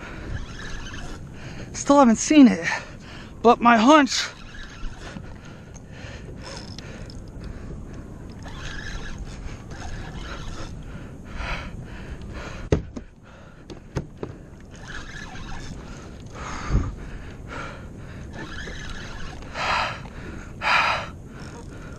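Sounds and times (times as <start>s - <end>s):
water noise: 0.0s - 12.5s, 13.9s - 21.9s
wind: 0.0s - 21.9s
person breathing hard: 10.8s - 14.5s, 19.5s - 21.9s.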